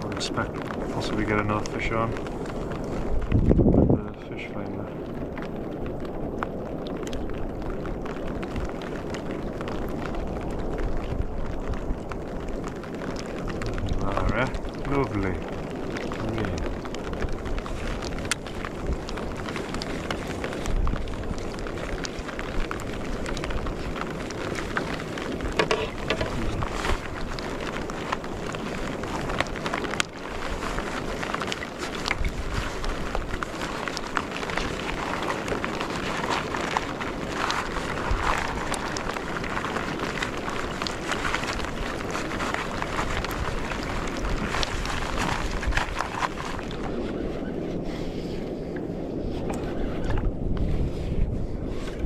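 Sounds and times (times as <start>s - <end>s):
light clicks and splashes: 0.0s - 47.2s
choppy water washing: 0.0s - 52.0s
waves lapping against kayak hull: 0.0s - 52.0s
wind buffeting microphone: 0.0s - 52.0s
water knocking against kayak hull: 25.5s - 27.0s.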